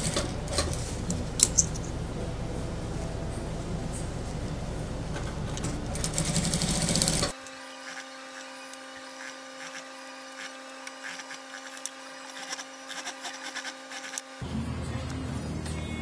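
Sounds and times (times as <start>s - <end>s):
electrical hum: 0.0s - 16.0s
sewing machine stitching: 5.6s - 8.1s.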